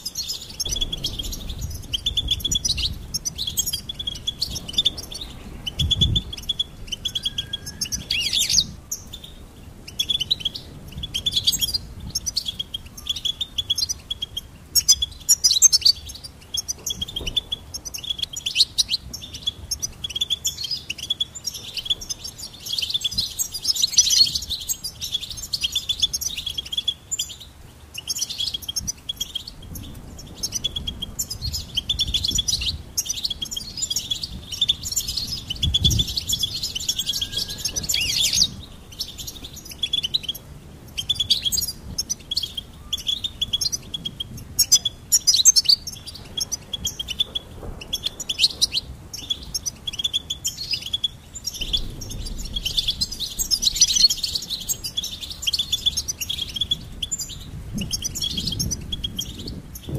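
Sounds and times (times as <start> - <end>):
finch singing: 0.0 - 59.9.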